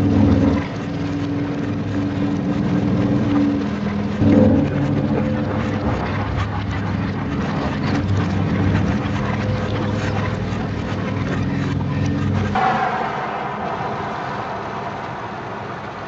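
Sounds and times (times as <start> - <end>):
low layered drone: 0.0 - 16.0.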